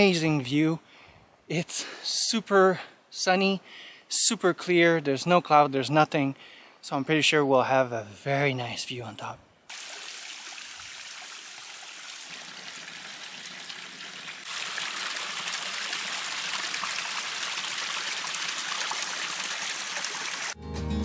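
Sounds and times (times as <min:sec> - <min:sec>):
stream water rushing: 0:09.7 - 0:20.6.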